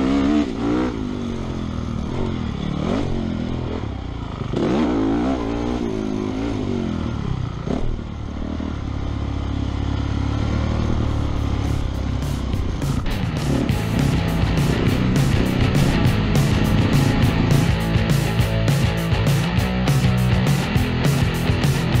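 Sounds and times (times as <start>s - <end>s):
motocross bike engine revving: 0.0s - 22.0s
music with a beat: 11.4s - 22.0s.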